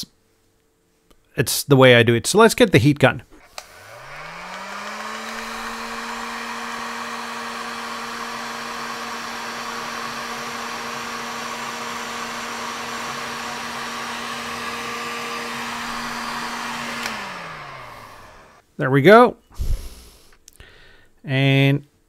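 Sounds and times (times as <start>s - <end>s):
heat gun fan hum: 3.4s - 18.6s.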